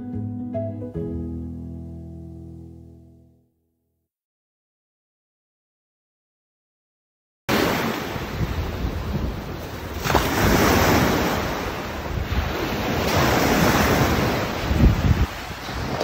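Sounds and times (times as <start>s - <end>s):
waves breaking into foam: 7.5s - 9.2s, 9.8s - 16.0s
wind buffeting microphone: 8.0s - 16.0s.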